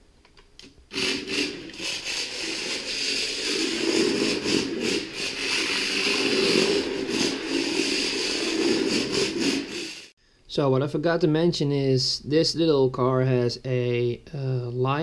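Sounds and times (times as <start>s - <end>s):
small electric motor and gears whirring: 0.9s - 10.1s.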